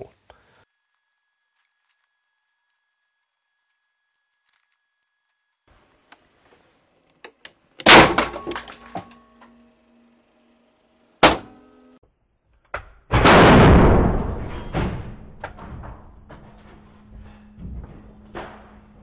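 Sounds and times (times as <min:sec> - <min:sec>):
very loud sharp bangs: 0:07.8 - 0:08.7, 0:11.2 - 0:11.6, 0:13.1 - 0:15.8.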